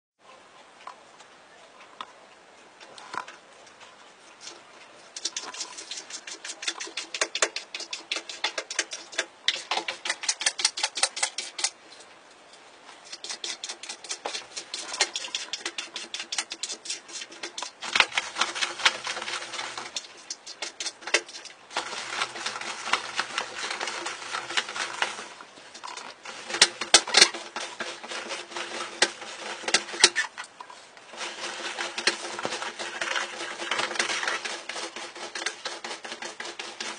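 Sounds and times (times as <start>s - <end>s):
cat pulling toilet paper roll: 13.1s - 30.4s, 31.1s - 36.9s.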